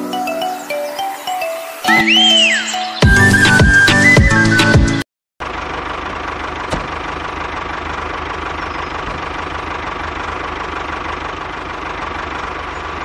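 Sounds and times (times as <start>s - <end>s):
small tractor engine drone: 5.4s - 13.0s.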